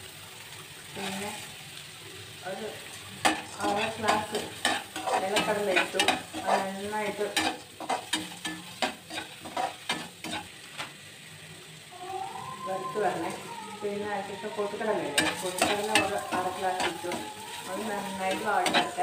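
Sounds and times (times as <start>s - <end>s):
oil sizzling: 0.0s - 19.0s
metal spoon scraping metal pan: 3.2s - 10.6s, 15.1s - 19.0s.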